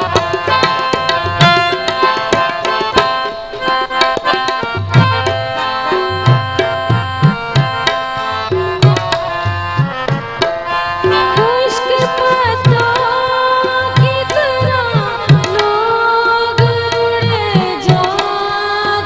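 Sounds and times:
sustained melody notes: 0:00.0 - 0:13.6
tabla drumming: 0:00.0 - 0:19.0.

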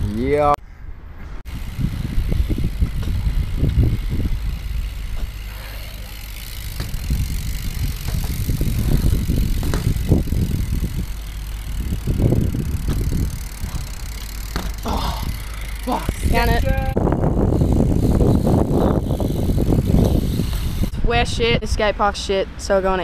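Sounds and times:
wind buffeting microphone: 0:00.0 - 0:23.0
bike tyres rolling on concrete: 0:01.4 - 0:21.0
bike knocks: 0:01.5 - 0:16.9.

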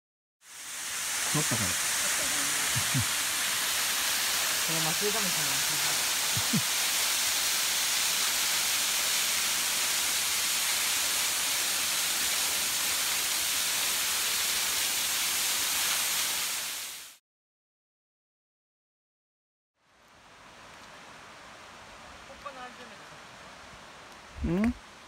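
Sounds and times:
waterfall splashing onto rocks: 0:00.5 - 0:17.2.

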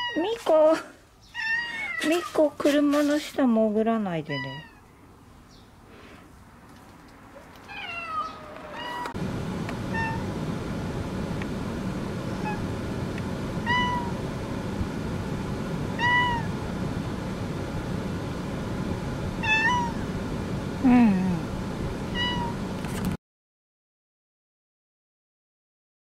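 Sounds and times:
cat meowing: 0:01.3 - 0:02.3, 0:04.3 - 0:04.8, 0:07.6 - 0:09.2, 0:09.9 - 0:10.2, 0:13.6 - 0:14.2, 0:16.0 - 0:16.5, 0:19.4 - 0:20.0, 0:22.1 - 0:22.6
car running noise: 0:08.5 - 0:23.2.

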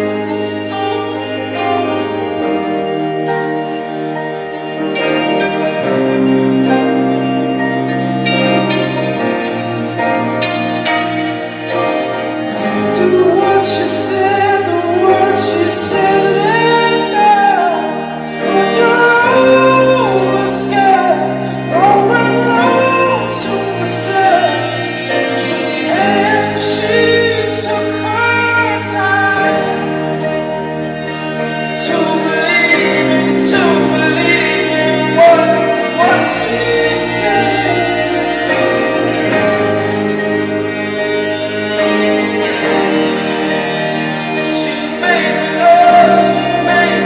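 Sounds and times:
slow song with singing voice: 0:00.0 - 0:47.0.

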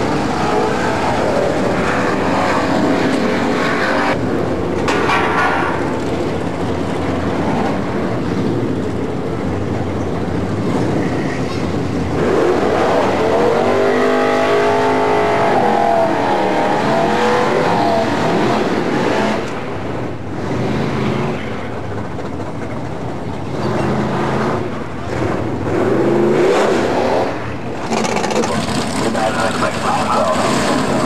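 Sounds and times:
car engine revving: 0:00.0 - 0:04.5, 0:11.7 - 0:21.8, 0:23.4 - 0:31.0.

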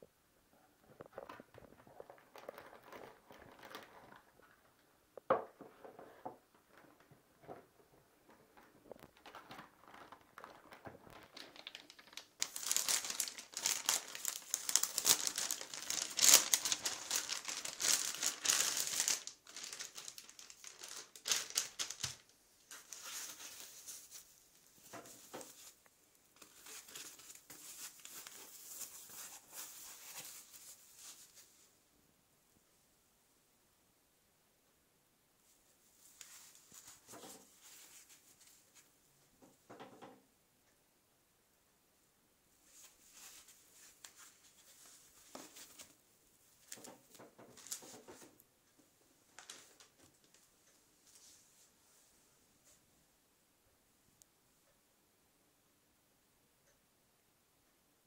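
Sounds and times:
plastic bag crinkling: 0:01.0 - 0:04.8, 0:08.6 - 0:25.8, 0:26.4 - 0:31.4, 0:46.6 - 0:48.3, 0:49.3 - 0:50.4.

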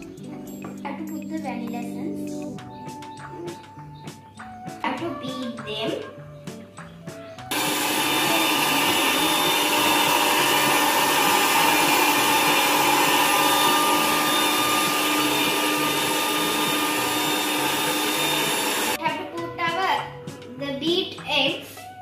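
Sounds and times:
stand mixer motor whining: 0:07.5 - 0:19.0.

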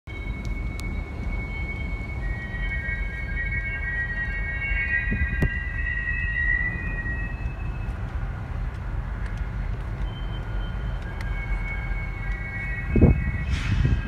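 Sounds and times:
diesel locomotive rumble: 0:00.1 - 0:14.0
high-pitched whine: 0:00.1 - 0:14.0
wind on microphone: 0:12.8 - 0:14.0.

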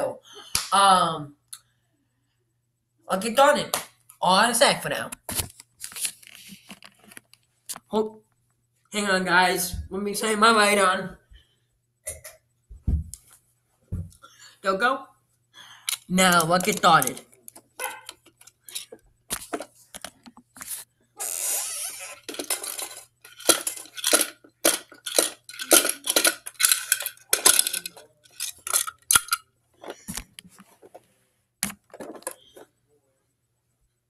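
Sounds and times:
plastic toy clicks and clatters: 0:15.9 - 0:18.9, 0:22.1 - 0:29.4.

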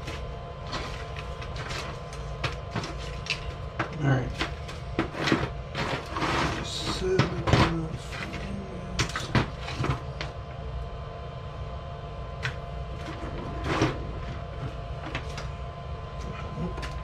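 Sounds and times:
small parts and drawers rattling: 0:00.0 - 0:10.4, 0:12.4 - 0:15.5
steady low hum: 0:00.0 - 0:17.0.

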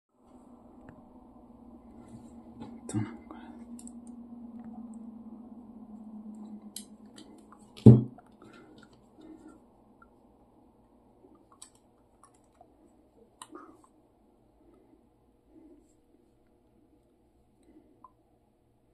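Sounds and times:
low steady hum: 0:00.1 - 0:18.9.

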